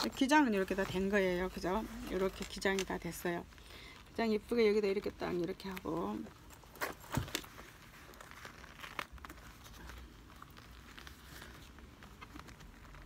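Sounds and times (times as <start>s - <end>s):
leather jacket rustling: 5.9s - 13.0s.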